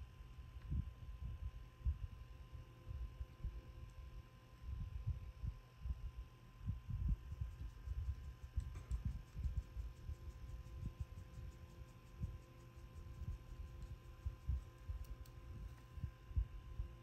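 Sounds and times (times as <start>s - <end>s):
faint steady hum: 0.0s - 17.0s
faint small clicks: 7.6s - 15.9s.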